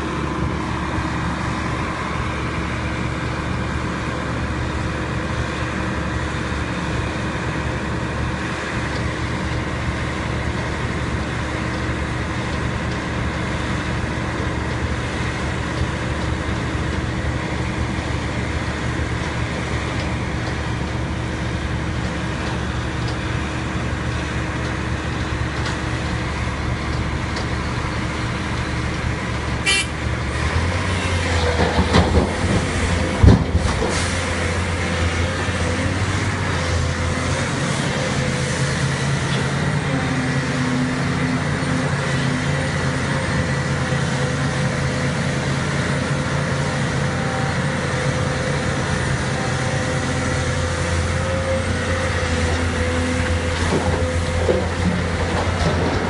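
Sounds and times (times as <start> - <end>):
dump truck engine: 0.0 - 56.0
excavator diesel engine running: 0.0 - 56.0
brief horn toot: 29.6 - 30.0.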